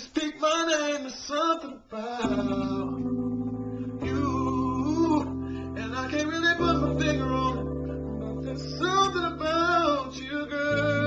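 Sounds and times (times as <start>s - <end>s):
man singing: 0.0s - 11.0s
held accompaniment chords: 2.2s - 11.0s.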